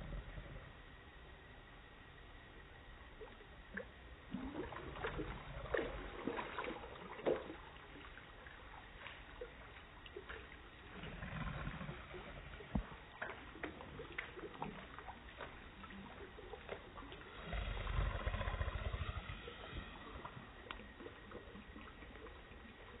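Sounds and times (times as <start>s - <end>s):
low microphone rumble: 0.0s - 1.2s, 17.2s - 22.0s
steady hiss: 17.0s - 22.8s.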